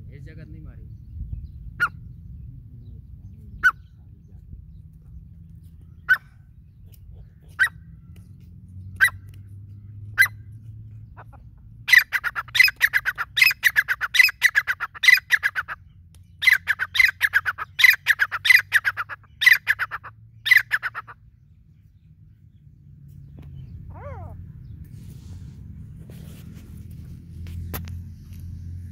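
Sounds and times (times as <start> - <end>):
francolin calling: 11.2 - 21.3.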